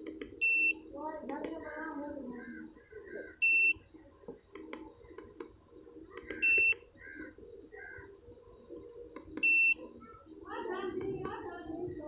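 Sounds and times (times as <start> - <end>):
rubber keypad clicks: 0.0 - 0.6, 4.4 - 5.5, 6.1 - 6.8, 9.1 - 9.7
faint bird chirps: 0.4 - 12.0.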